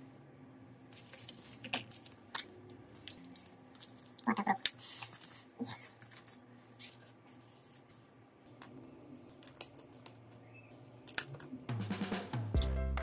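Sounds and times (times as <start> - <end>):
light scrapes of small parts: 0.9 - 8.0.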